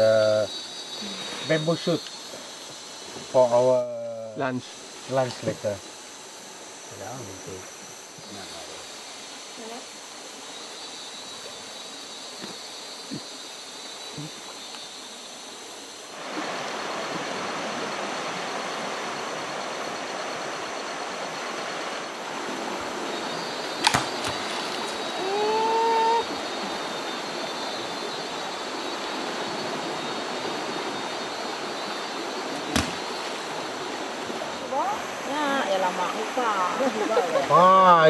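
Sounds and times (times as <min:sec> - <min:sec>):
insects buzzing: 0:00.0 - 0:38.0
jungle ambience: 0:00.0 - 0:38.0
shallow river rushing: 0:15.0 - 0:38.0
object splashing into water: 0:23.8 - 0:25.1, 0:32.6 - 0:33.4.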